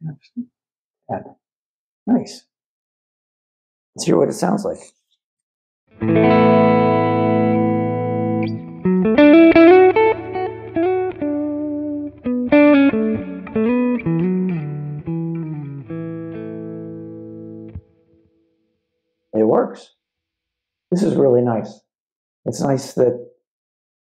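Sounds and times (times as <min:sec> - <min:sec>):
electric guitar with delay: 0:06.0 - 0:17.8.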